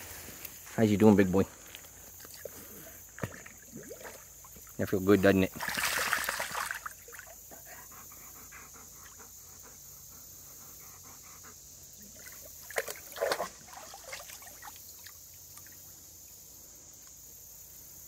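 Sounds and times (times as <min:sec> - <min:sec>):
water sloshing: 0:03.2 - 0:04.8, 0:05.4 - 0:07.4, 0:12.2 - 0:15.8
dog panting softly: 0:07.5 - 0:11.7.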